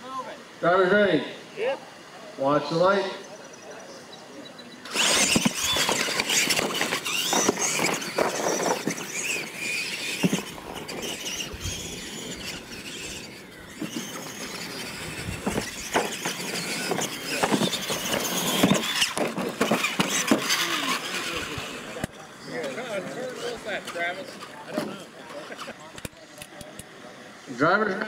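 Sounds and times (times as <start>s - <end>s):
electric motor and gear whine: 4.4s - 25.4s
toy trucks thumping on landing: 4.9s - 21.2s.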